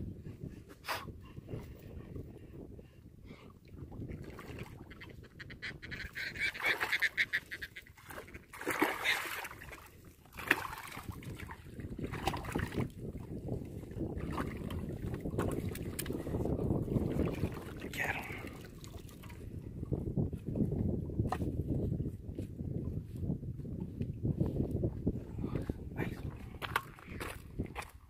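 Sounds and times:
wind rumble on microphone: 0:00.0 - 0:28.0
fish thrashing and splashing: 0:07.9 - 0:12.9, 0:14.2 - 0:16.3.

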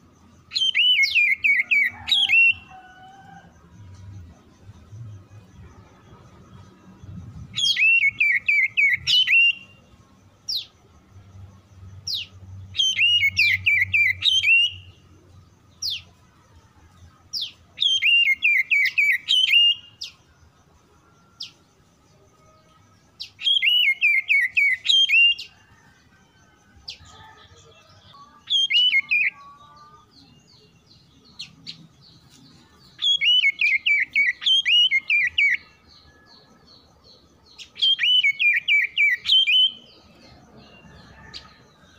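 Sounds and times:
bird whistled song: 0:00.5 - 0:02.8, 0:07.4 - 0:09.8, 0:12.1 - 0:15.1, 0:17.4 - 0:20.2, 0:23.2 - 0:25.6, 0:28.4 - 0:29.4, 0:32.9 - 0:36.3, 0:37.5 - 0:40.0.

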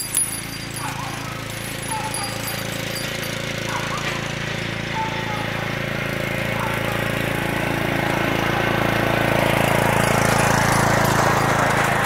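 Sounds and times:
riding lawn mower engine running: 0:00.0 - 0:12.0.

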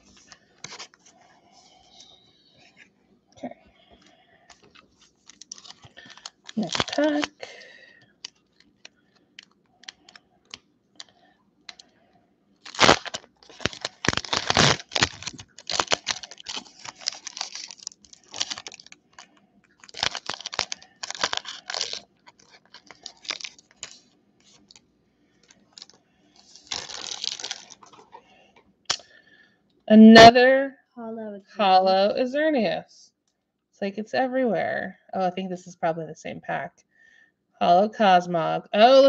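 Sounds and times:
foil wrapper crinkling: 0:04.5 - 0:11.1, 0:12.6 - 0:24.8, 0:25.4 - 0:28.3
foil wrapper tearing: 0:04.7 - 0:07.6, 0:12.6 - 0:24.8, 0:25.4 - 0:28.2.

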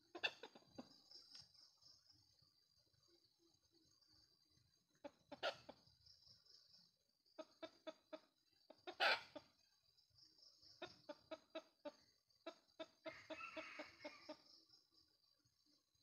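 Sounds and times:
rooster clucking: 0:00.1 - 0:00.9, 0:07.4 - 0:09.5.

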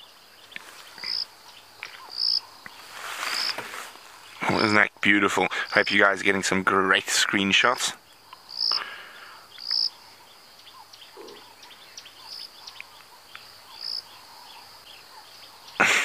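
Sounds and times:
high bird chirps: 0:00.0 - 0:03.6, 0:07.7 - 0:15.8
faint ticking calls: 0:00.0 - 0:15.8.

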